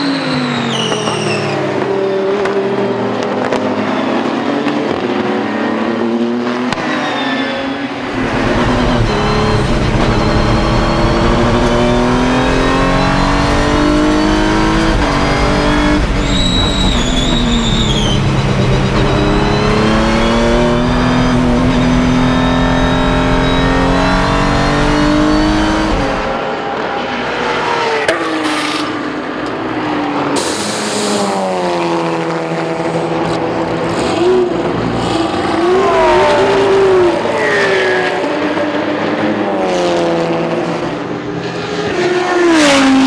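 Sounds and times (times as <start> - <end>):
high squeal: 0.0 - 1.7, 6.9 - 26.4
race car engine revving: 7.8 - 43.0.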